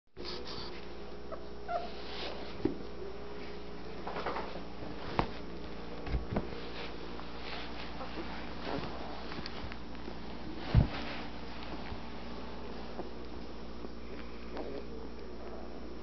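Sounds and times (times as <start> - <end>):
steady low hum: 0.2 - 16.0
puppies squeaking and whimpering: 1.3 - 2.0.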